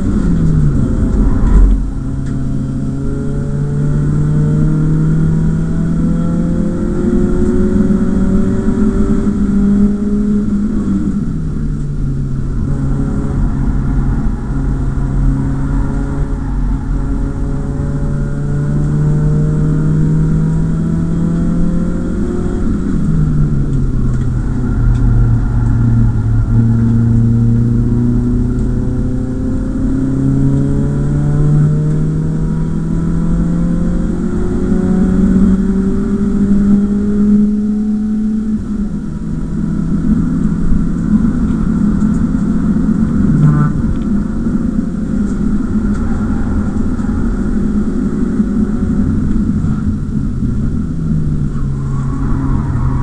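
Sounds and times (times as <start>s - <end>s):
car engine revving: 0.0s - 53.0s
tyre and road noise: 0.0s - 53.0s.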